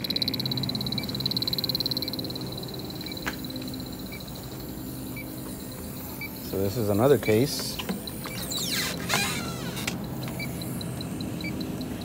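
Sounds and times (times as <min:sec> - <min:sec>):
faint ticking: 0:00.0 - 0:08.7
leak detector pulsing alarm: 0:00.0 - 0:12.0
low steady hum: 0:00.0 - 0:12.0.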